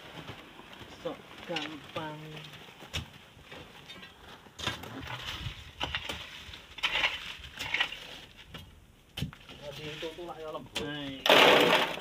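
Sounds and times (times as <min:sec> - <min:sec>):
tools scraping sand and gravel: 0:04.6 - 0:08.7, 0:09.4 - 0:12.0.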